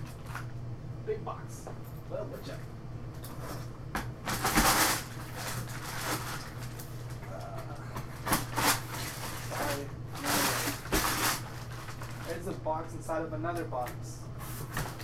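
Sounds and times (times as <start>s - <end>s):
packing paper rustling: 3.3s - 12.6s
tape tearing off cardboard box: 4.3s - 6.4s.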